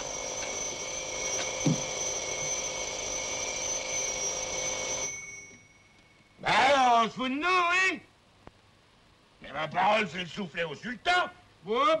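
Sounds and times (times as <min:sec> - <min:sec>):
electric doorbell ringing: 0:00.0 - 0:06.2.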